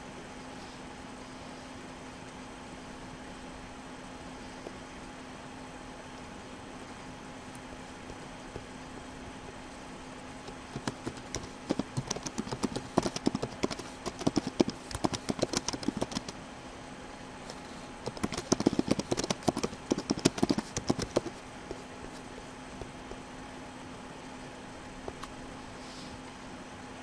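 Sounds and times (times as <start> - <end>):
computer keyboard typing: 10.4 - 16.4, 18.0 - 21.8.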